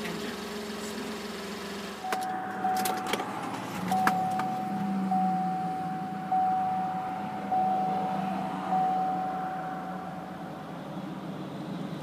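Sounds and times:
car engine idling: 0:00.0 - 0:12.0
dashboard warning chime: 0:02.0 - 0:10.5.

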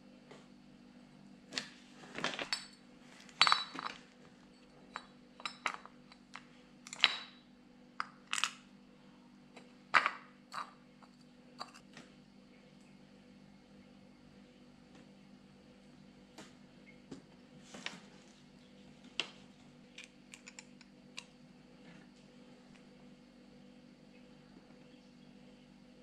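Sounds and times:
metal parts clicking and clinking: 0:20.0 - 0:20.8.

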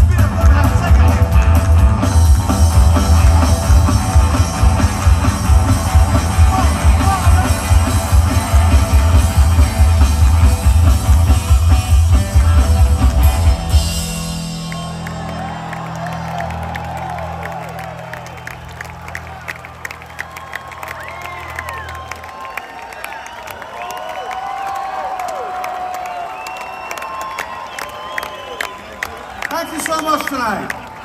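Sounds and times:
drum kit: 0:00.0 - 0:17.8
upright bass: 0:00.0 - 0:20.1
electric guitar: 0:00.0 - 0:22.2.

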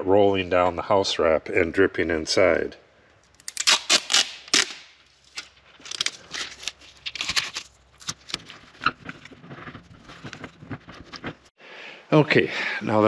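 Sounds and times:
adhesive tape ripping and rustling: 0:03.3 - 0:08.8.

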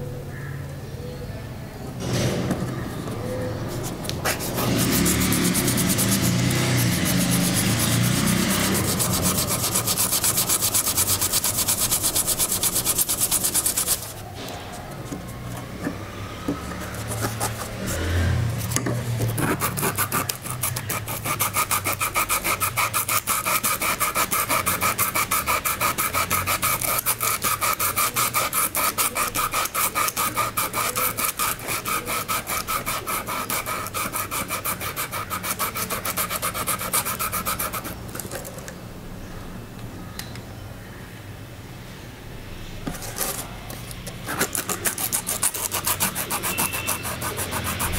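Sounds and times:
sandpaper scratching on metal: 0:03.7 - 0:14.3, 0:16.8 - 0:38.0, 0:44.2 - 0:47.9.

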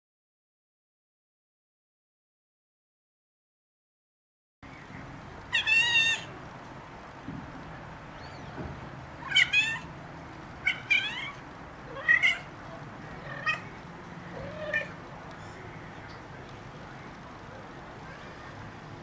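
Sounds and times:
kittens mewing: 0:05.1 - 0:06.4, 0:08.2 - 0:16.0, 0:17.6 - 0:18.7.

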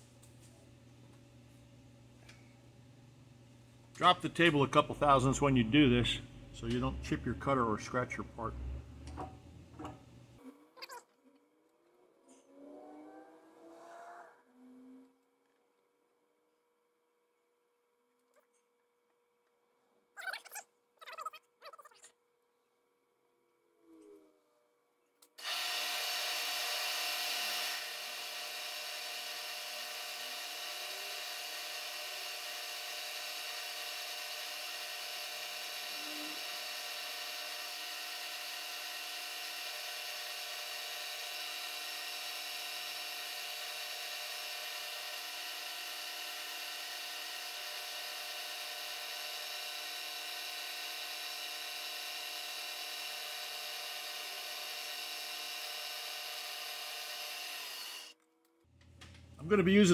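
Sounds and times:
milling machine whining: 0:03.2 - 0:10.4, 0:25.4 - 0:58.1.

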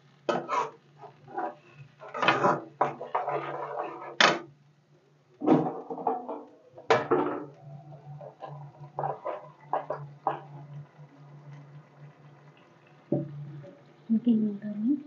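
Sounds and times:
metal spatula scraping a pan: 0:00.3 - 0:04.4, 0:07.0 - 0:10.8.

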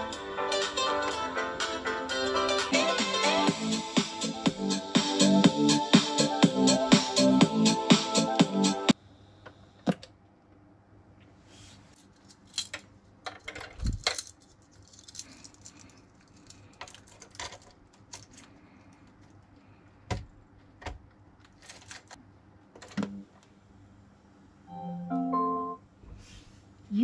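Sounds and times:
metal keychain jangling: 0:13.8 - 0:18.5.

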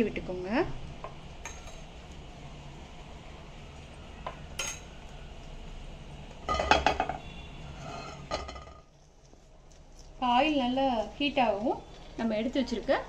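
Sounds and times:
metal spoon clinking on frying pan: 0:01.4 - 0:01.9.

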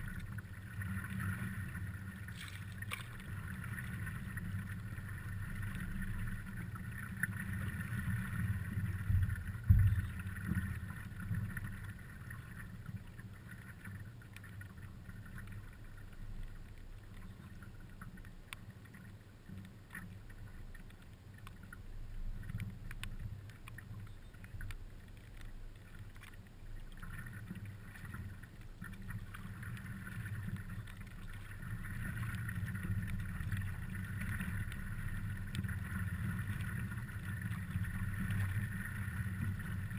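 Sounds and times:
water lapping against paddleboard: 0:00.0 - 0:15.9
wind rumble on microphone: 0:00.0 - 0:39.9
thump: 0:09.1 - 0:10.1.

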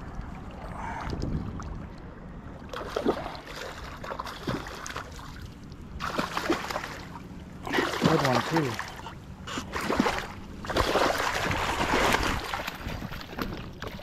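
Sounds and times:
low rumble: 0:00.0 - 0:04.8
water splashing and churning: 0:00.0 - 0:14.0.

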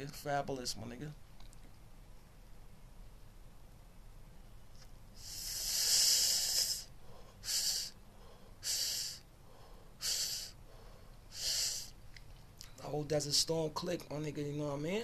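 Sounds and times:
man breathing while smoking: 0:05.2 - 0:12.0.

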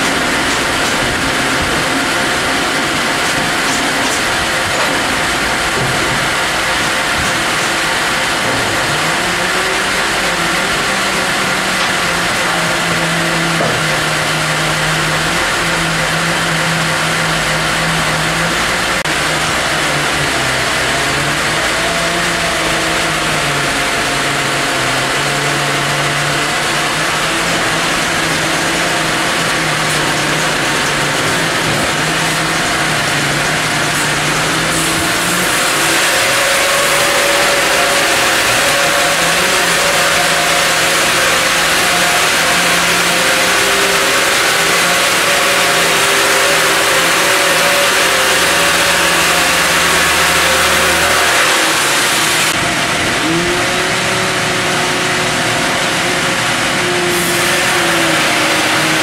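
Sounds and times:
band saw sawing log: 0:00.0 - 0:59.0.

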